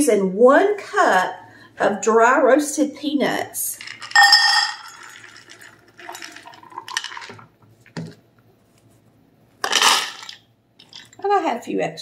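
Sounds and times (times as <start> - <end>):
peanuts rattling into metal cup: 3.7 - 7.4.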